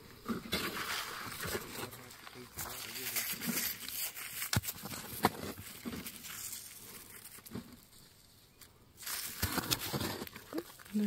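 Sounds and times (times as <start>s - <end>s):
fingers raking through dry soil: 0.3s - 8.3s.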